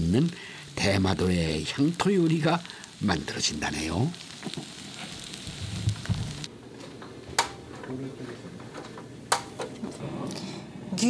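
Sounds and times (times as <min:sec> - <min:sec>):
food sizzling on hot stone: 0:00.0 - 0:06.5.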